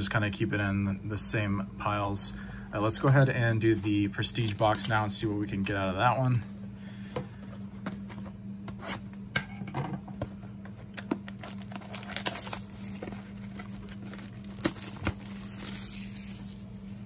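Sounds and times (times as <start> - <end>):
plastic wrapper crinkling: 11.2 - 17.0.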